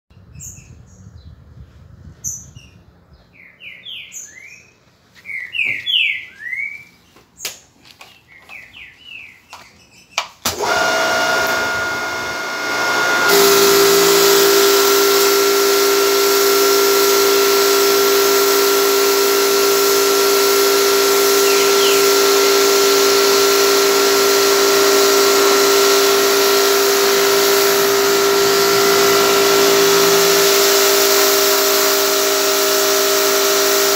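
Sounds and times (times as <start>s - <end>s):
small birds chirping: 2.2s - 10.3s, 21.4s - 22.2s
pressure washer running: 10.5s - 33.9s.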